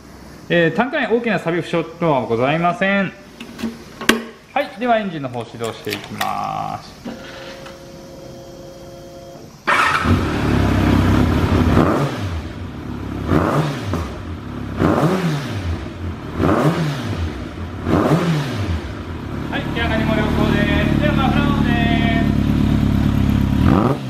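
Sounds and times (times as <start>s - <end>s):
motorcycle engine revving: 9.6s - 24.0s.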